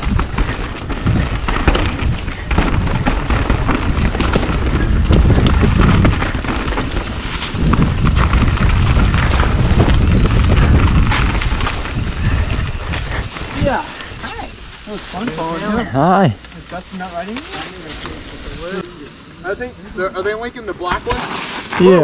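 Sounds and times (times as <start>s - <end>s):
wind rumble on microphone: 0.0s - 14.9s
bike clattering over bumps: 0.0s - 15.7s
bike tyres crunching on leaves: 0.0s - 22.0s.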